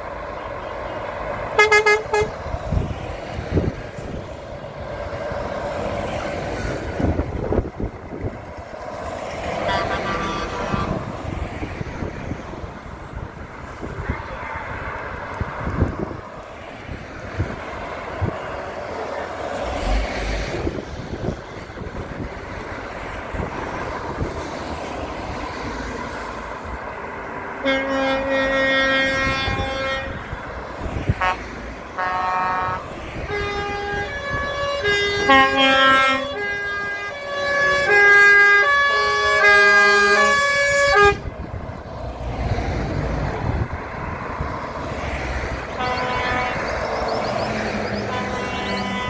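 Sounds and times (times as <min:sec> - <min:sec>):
trucks driving past: 0:00.0 - 0:49.0
truck air horn playing tune: 0:01.6 - 0:02.5, 0:09.6 - 0:11.2, 0:27.6 - 0:30.4, 0:31.1 - 0:41.3, 0:45.7 - 0:46.8, 0:48.0 - 0:49.0.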